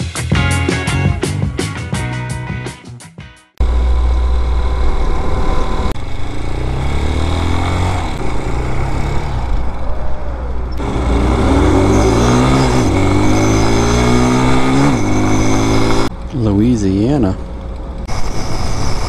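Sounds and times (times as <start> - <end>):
motorcycle engine accelerating: 3.6 - 19.0.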